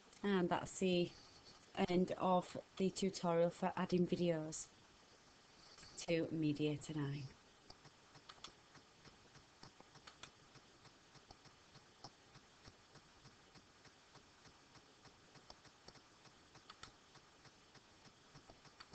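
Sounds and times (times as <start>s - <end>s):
computer keyboard clicking: 7.7s - 8.6s, 9.6s - 12.8s, 15.0s - 17.0s.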